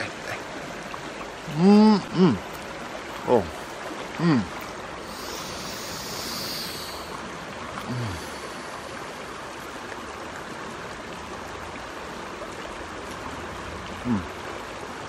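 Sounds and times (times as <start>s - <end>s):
river flowing over rocks: 0.0s - 15.0s.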